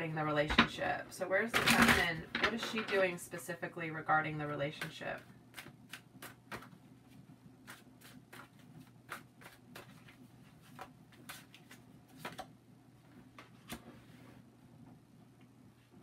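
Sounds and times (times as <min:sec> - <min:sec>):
cards being shuffled: 0:05.5 - 0:12.5.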